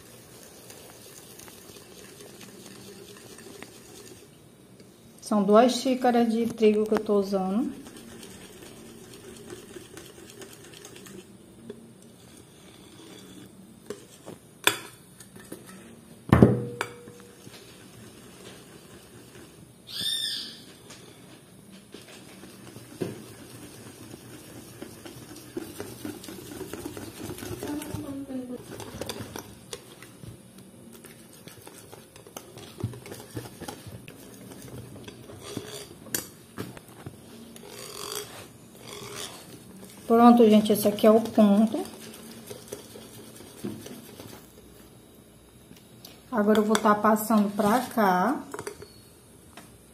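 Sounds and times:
wire whisk stirring batter: 0.0s - 4.4s, 7.4s - 15.8s, 17.3s - 19.6s, 22.0s - 30.0s, 31.0s - 36.3s, 37.6s - 44.6s.

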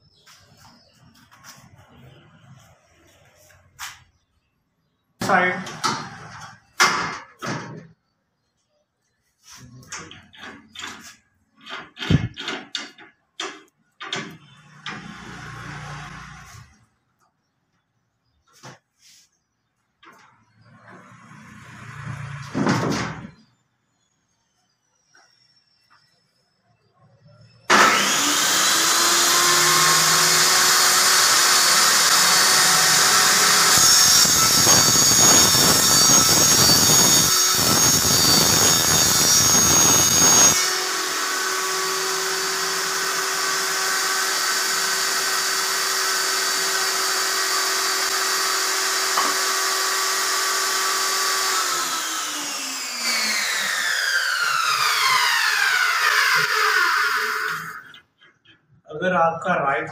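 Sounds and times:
table saw whining: 9.6s - 16.9s, 20.1s - 58.6s
saw blade spinning down: 27.7s - 57.9s
saw blade cutting board: 27.7s - 58.0s.

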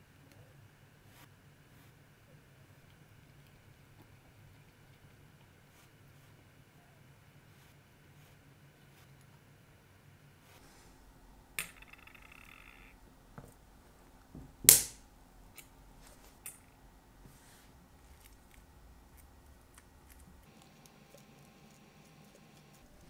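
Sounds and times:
sharp loud metallic click: 14.7s - 15.0s.

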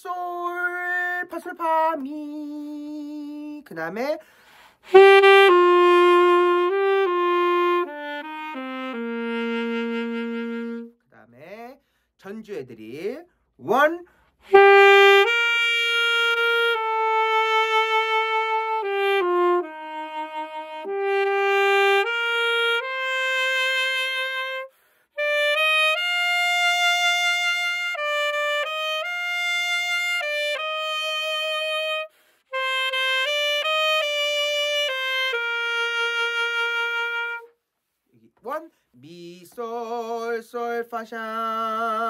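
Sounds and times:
solo alto saxophone melody: 4.8s - 11.0s, 14.4s - 37.6s.

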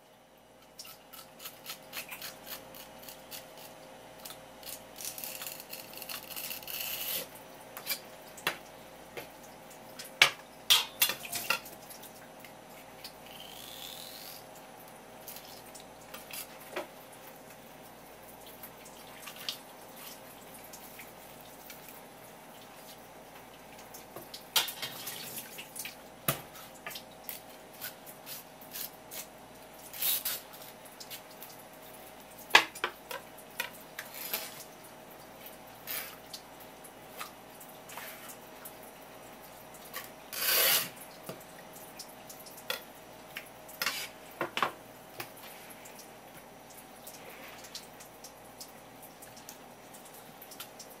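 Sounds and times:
knife cutting and scraping fish: 0.6s - 8.1s, 27.3s - 29.3s, 29.9s - 31.2s, 39.9s - 41.0s, 43.8s - 44.2s.

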